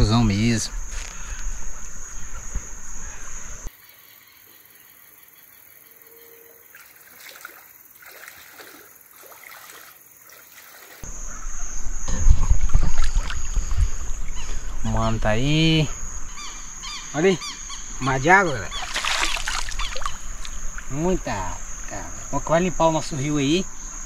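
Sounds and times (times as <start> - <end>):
floodwater splashing: 6.7 - 11.0, 12.6 - 13.6, 18.7 - 21.2
water rushing: 18.7 - 22.0.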